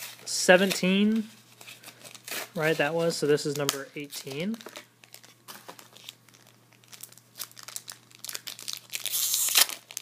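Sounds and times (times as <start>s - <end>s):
foil pack crinkling: 0.0s - 10.0s
foil pack ripping open: 4.6s - 10.0s.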